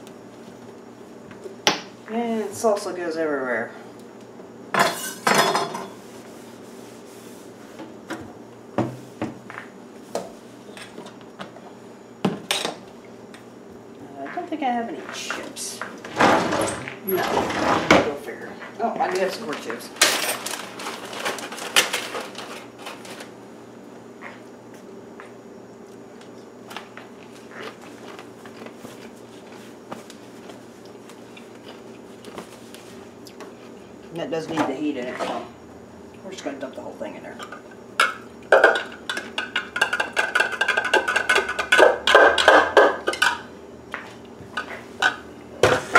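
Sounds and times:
kitchen room hum: 0.0 - 45.9
cloth rubbing over countertop: 5.9 - 7.8.

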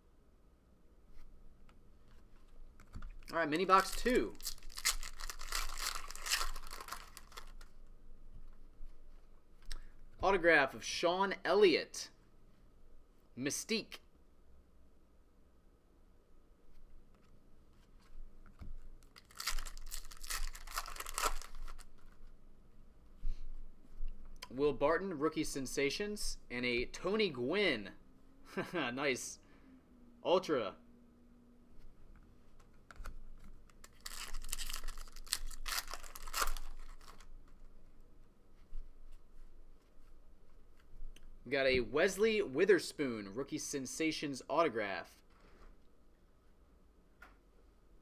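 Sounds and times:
cards being handled: 2.0 - 7.8, 17.1 - 22.3, 32.5 - 37.8
foil wrapper tearing and crinkling: 3.6 - 7.7, 19.2 - 21.9, 33.8 - 37.3.

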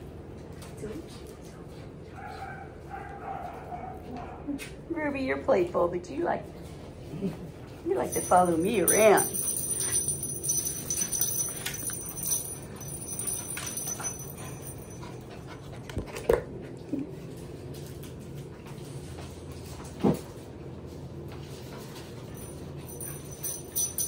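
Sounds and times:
puppies scuffling: 6.7 - 16.2.

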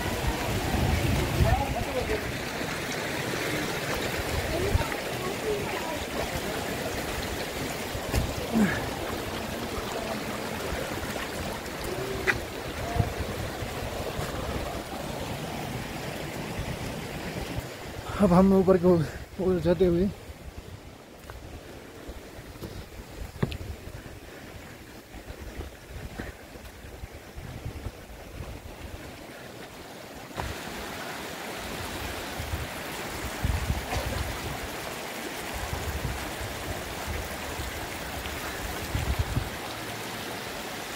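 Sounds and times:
wind buffeting microphone: 0.0 - 2.5, 4.0 - 18.0, 20.3 - 29.2, 32.4 - 34.7, 38.6 - 39.6
stream running over stones: 0.0 - 40.9
footsteps knocking on rock: 22.6 - 23.6.

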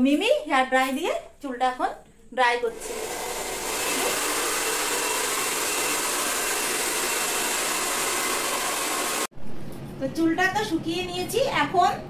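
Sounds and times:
hair dryer blowing air: 2.7 - 9.3.

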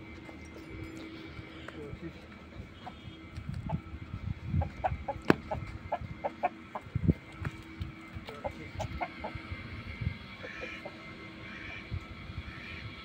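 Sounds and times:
chicken clucking: 4.6 - 7.0.

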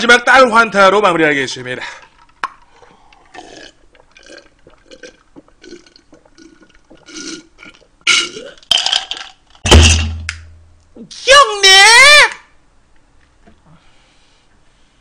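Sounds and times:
man swallowing drink: 2.4 - 8.7.

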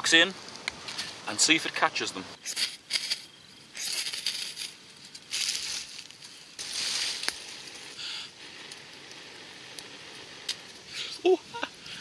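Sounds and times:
breathy puffs of blowing: 7.8 - 9.6.

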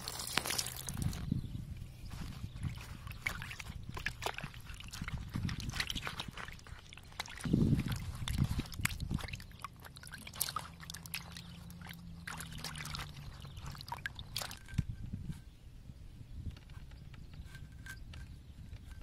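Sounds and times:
water sloshing and splashing: 0.0 - 1.3, 2.2 - 15.0
water dripping: 2.7 - 14.7.

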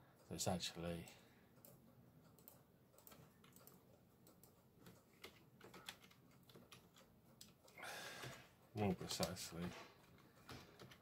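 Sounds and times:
keyboard typing clicks: 1.0 - 8.4.

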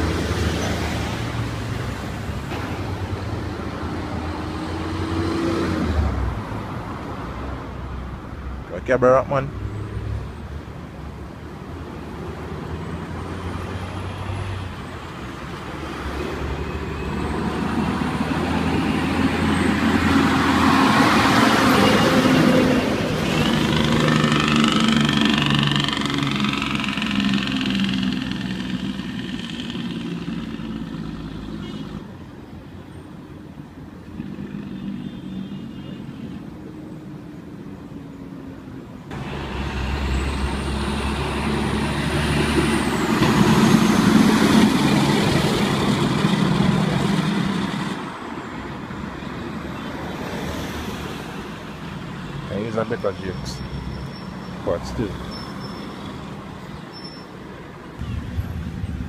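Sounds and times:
heavy trucks passing: 0.0 - 35.8, 36.5 - 59.0
traffic: 0.0 - 59.0
lorry diesel engine: 12.9 - 32.1, 38.8 - 49.6.

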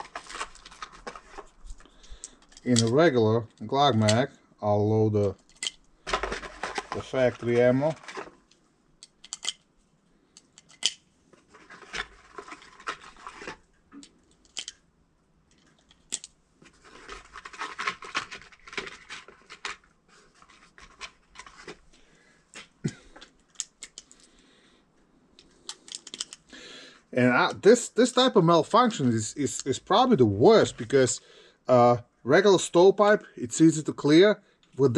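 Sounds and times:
cartridges clicking into magazine: 9.0 - 9.6.

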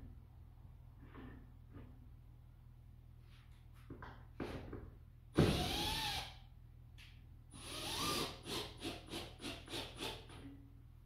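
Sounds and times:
power tool motor bursts: 7.6 - 10.2.

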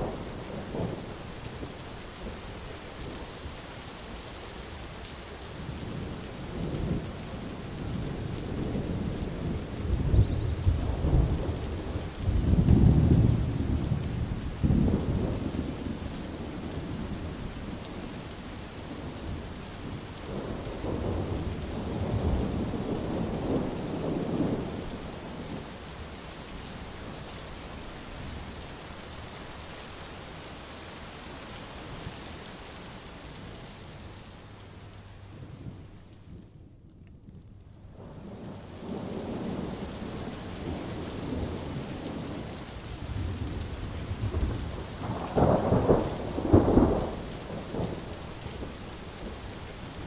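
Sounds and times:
steady rain: 0.0 - 50.0
thunder rumbling: 5.8 - 17.8, 20.2 - 25.6, 35.2 - 49.9.

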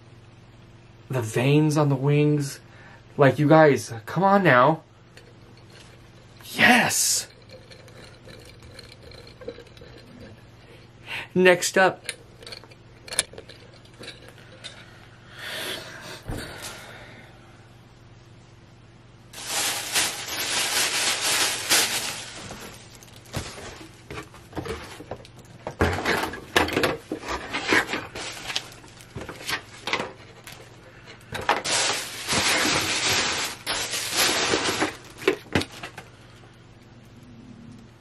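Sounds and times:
paper rustling and scraping: 19.4 - 25.1, 27.1 - 30.8, 31.5 - 36.0.

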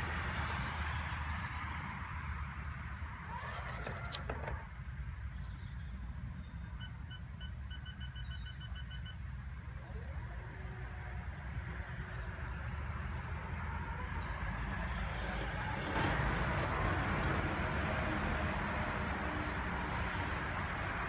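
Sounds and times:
robotic lawn mower humming: 3.2 - 4.7.

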